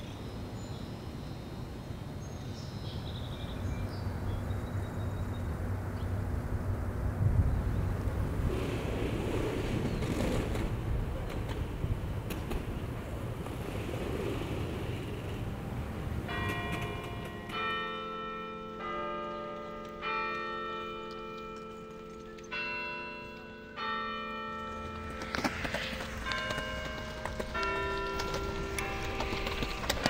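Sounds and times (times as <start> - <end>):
tower bells playing a tune: 15.6 - 30.0.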